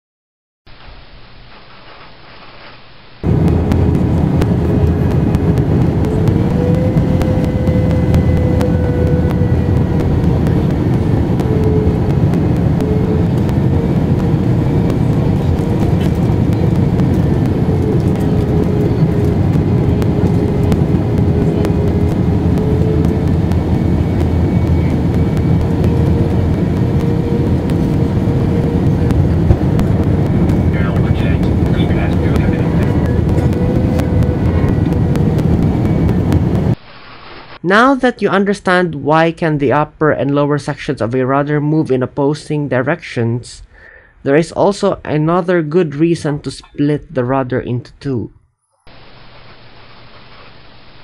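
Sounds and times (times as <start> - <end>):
jet airliner cabin noise: 3.2 - 36.8.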